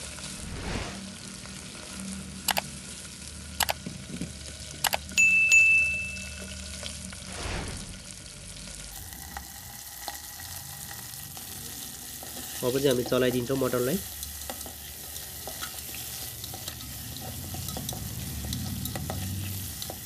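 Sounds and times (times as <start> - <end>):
meat sizzling in hot oil: 0.0 - 5.2, 6.2 - 20.0
soft whoosh: 0.3 - 1.2, 7.2 - 8.2
sharp double clicks: 4.8 - 5.0
bright ding: 5.2 - 6.6.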